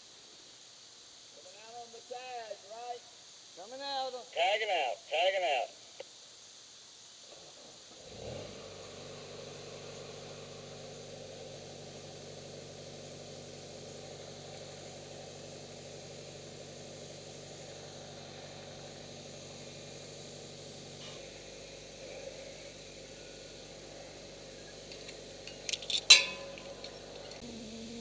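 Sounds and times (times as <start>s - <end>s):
light hiss: 0.0s - 28.0s
faint engine-like hum: 7.8s - 28.0s.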